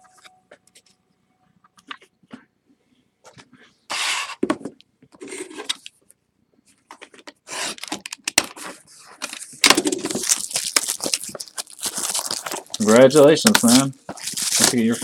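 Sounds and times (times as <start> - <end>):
plastic wrap crackling: 9.7 - 15.0.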